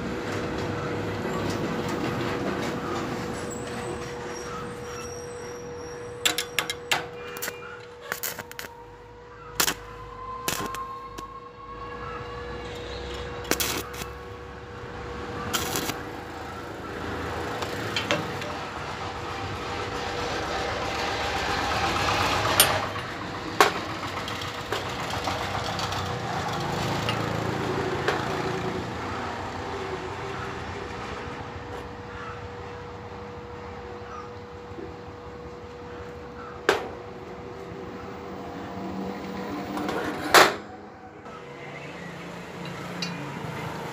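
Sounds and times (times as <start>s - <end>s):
welding machine hum: 4.4s - 11.2s, 12.6s - 29.0s
crackling welding arc: 6.2s - 8.8s, 9.5s - 11.3s, 13.2s - 14.5s, 15.4s - 18.6s
sharp cracks: 7.4s - 8.8s, 9.6s - 9.9s, 10.5s - 11.3s, 13.4s - 14.2s, 15.5s - 16.0s.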